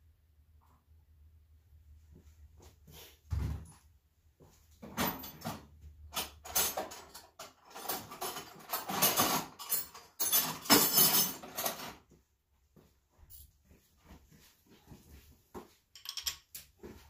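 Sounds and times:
metal tools clattering: 5.0 - 12.0, 16.0 - 16.7.

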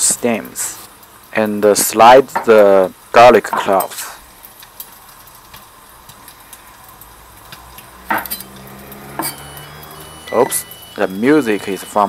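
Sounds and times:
rice cooker electronic tune: 8.2 - 12.0.

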